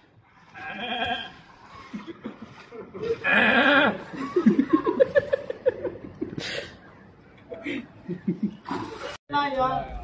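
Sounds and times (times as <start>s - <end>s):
people laughing: 1.8s - 6.8s, 7.4s - 8.9s.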